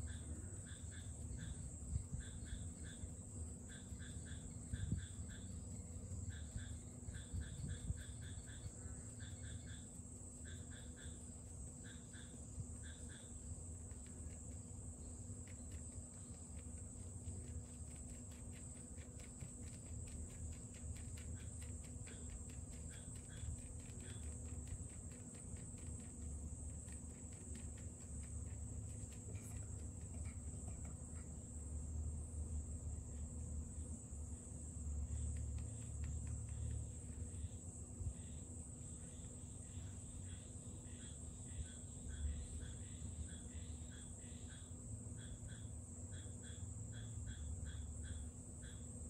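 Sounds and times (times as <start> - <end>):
faint insect chirping: 0.0 - 49.0.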